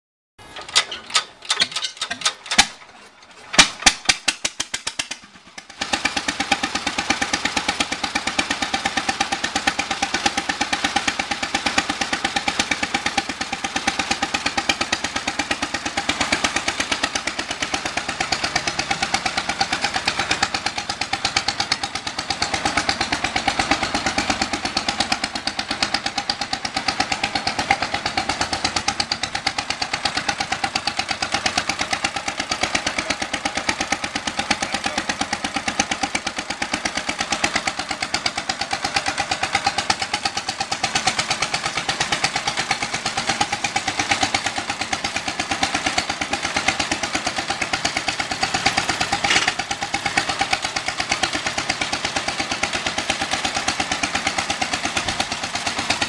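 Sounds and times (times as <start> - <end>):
engine steady putt-putt: 0.4 - 56.0
engine firing pops: 0.5 - 5.2.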